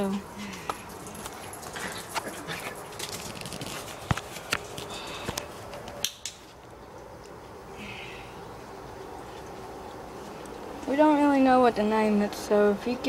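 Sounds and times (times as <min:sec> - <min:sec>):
dry leaves rustling: 0:00.0 - 0:05.2.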